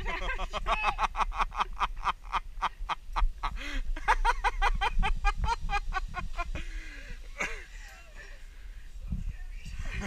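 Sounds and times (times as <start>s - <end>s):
woman laughing hard: 0.0s - 6.6s.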